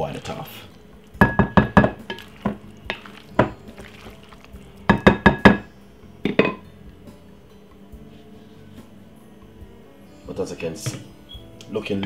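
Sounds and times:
wooden spoon knocking glass bowl: 0:01.2 - 0:04.1, 0:04.9 - 0:05.7.

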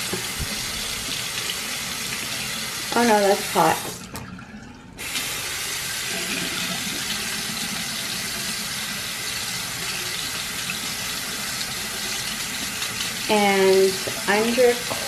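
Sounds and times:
tap water splashing into sink: 0:00.0 - 0:01.6.

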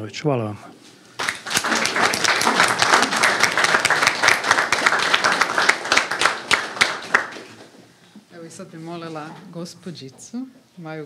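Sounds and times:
audience applauding: 0:01.2 - 0:07.8.

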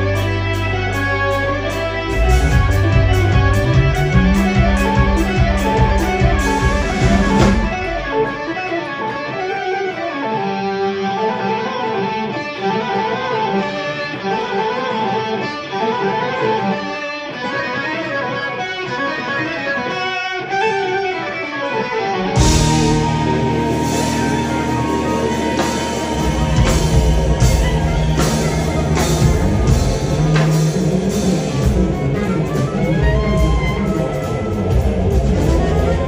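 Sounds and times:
drums: 0:00.0 - 0:15.8, 0:16.6 - 0:36.0
electric guitar: 0:00.0 - 0:36.0
progressive rock band playing: 0:00.0 - 0:36.0.

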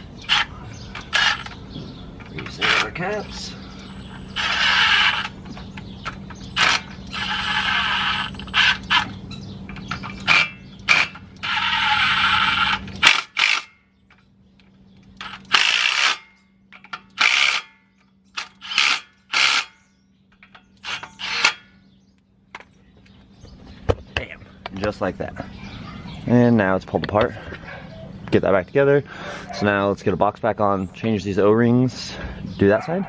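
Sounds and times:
steady low hum: 0:00.0 - 0:32.7
power tool bursts: 0:04.2 - 0:05.4, 0:06.5 - 0:09.1, 0:10.2 - 0:13.8, 0:15.2 - 0:16.4, 0:17.2 - 0:17.8, 0:18.4 - 0:19.8, 0:20.8 - 0:21.7
tools and metal parts knocking: 0:12.8 - 0:21.8.

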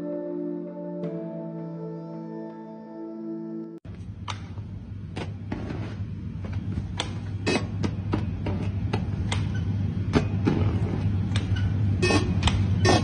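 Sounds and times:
low machine hum: 0:03.9 - 0:13.0.

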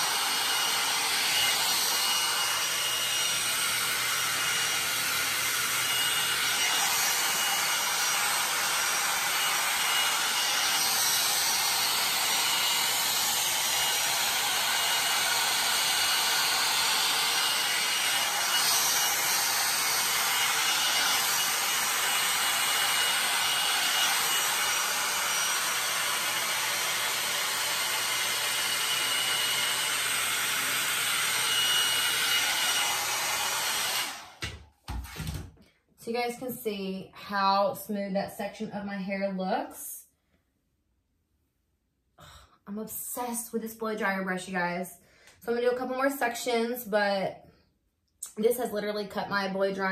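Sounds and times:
hot-air dryer brush blowing: 0:00.0 - 0:35.4.

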